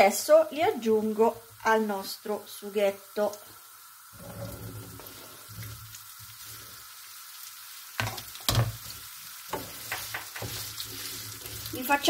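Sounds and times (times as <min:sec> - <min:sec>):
sausage sizzling in hot oil: 0:00.0 - 0:12.0
wooden spoon knocking on pan: 0:08.0 - 0:08.8, 0:09.5 - 0:10.7.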